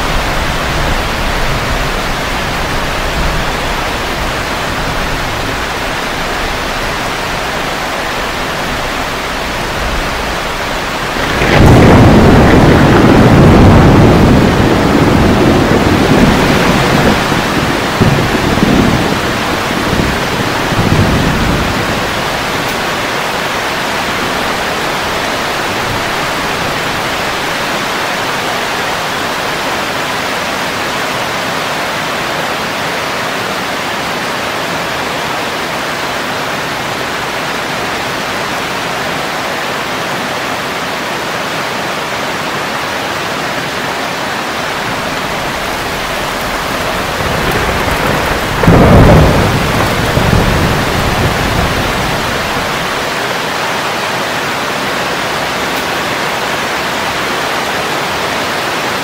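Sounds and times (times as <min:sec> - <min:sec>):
low rumble of thunder: 0:00.0 - 0:29.8, 0:44.6 - 0:53.8
steady rain hiss: 0:00.0 - 0:59.0.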